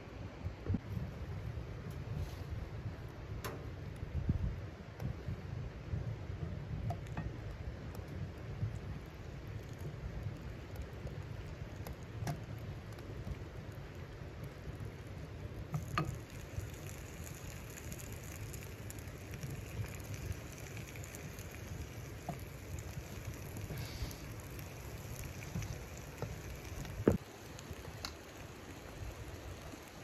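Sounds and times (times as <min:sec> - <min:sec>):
meat sizzling in a frying pan: 0:15.6 - 0:30.0.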